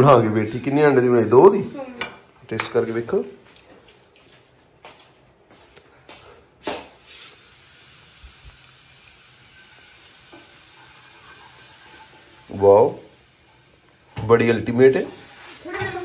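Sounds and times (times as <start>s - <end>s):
food sizzling in a pan: 6.6s - 16.0s.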